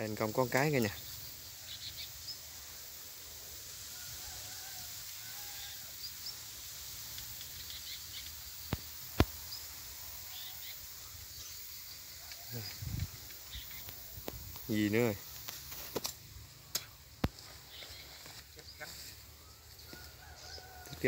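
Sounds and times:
outdoor background hiss: 0:00.0 - 0:21.0
faint bird chirps: 0:00.1 - 0:02.5, 0:07.4 - 0:15.3, 0:17.4 - 0:20.9.

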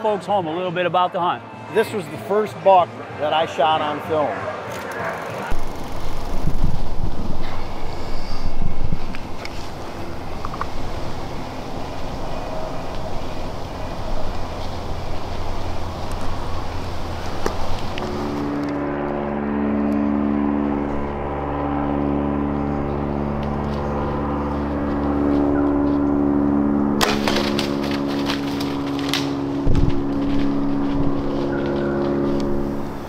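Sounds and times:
outdoor rushing noise: 0:00.0 - 0:33.0
low background music chords: 0:08.4 - 0:33.0.

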